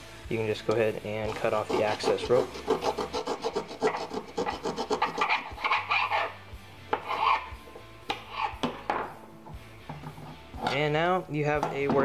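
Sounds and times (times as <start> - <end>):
knife sawing through rope: 1.3 - 6.4.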